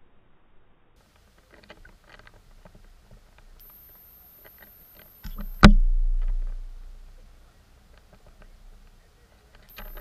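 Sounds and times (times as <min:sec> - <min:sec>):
loud underwater thud: 0:05.3 - 0:06.9.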